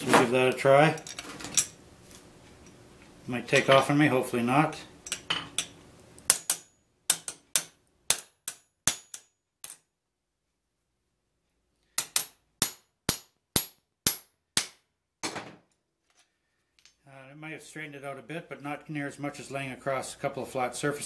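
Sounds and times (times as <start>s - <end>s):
hammer striking metal on anvil: 6.3s - 9.8s, 12.0s - 14.8s.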